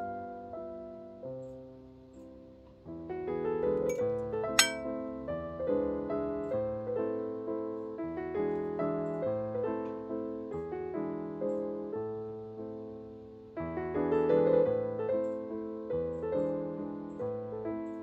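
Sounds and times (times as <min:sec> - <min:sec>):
solo piano music: 0:00.0 - 0:18.0
sharp clink: 0:04.6 - 0:04.8.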